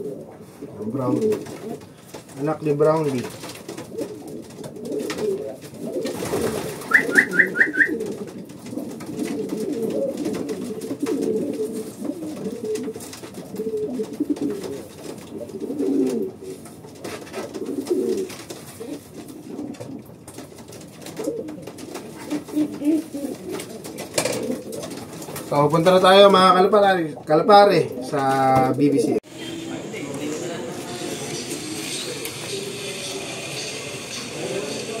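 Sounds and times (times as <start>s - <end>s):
pigeons cooing: 0.0s - 35.0s
quick high chirps: 6.9s - 8.0s.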